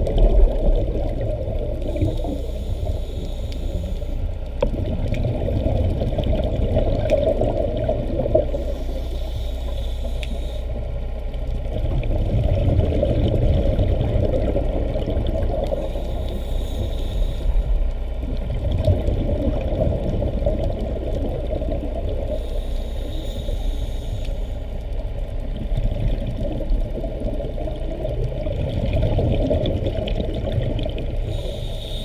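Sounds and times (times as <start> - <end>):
muffled underwater rush: 0.0 - 32.0
faint clicks: 1.8 - 5.2, 9.7 - 10.4.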